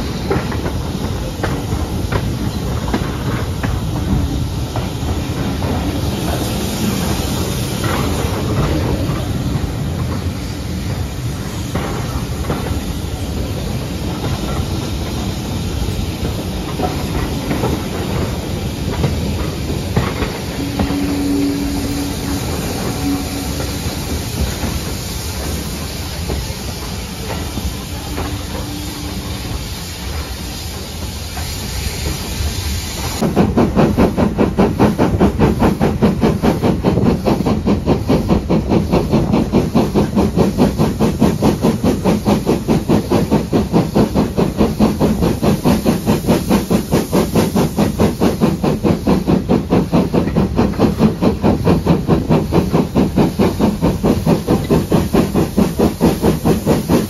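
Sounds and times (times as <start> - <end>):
rail yard noise: 0.0 - 57.0
steam locomotive exhaust beat: 0.0 - 57.0.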